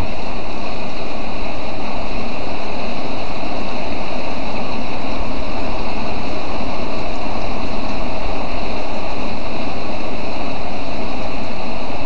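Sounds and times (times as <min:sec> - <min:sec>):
heavy rain pouring: 0:00.0 - 0:12.0.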